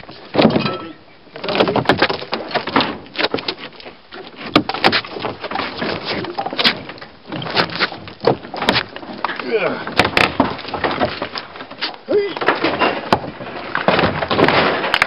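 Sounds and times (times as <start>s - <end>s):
wood and debris scraping and rustling: 0.0s - 15.0s
sharp clicks and knocks: 4.4s - 15.0s.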